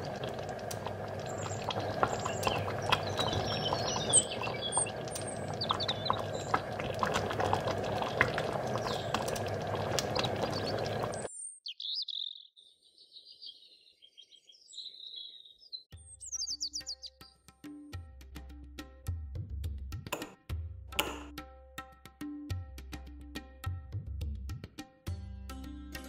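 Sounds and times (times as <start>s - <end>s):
chutney bubbling and popping: 0.0s - 11.3s
birds chirping: 0.0s - 17.3s
music with drum: 17.4s - 26.0s.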